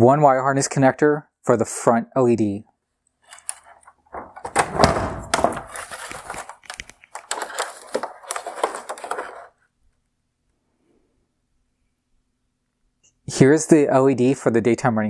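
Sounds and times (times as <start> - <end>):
plastic parts scraping and rustling: 3.2 - 9.6
sharp plastic clicks and knocks: 3.4 - 9.4.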